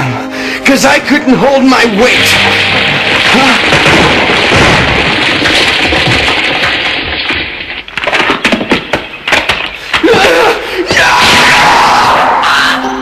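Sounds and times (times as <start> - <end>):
sharp crackles: 2.1 - 10.0.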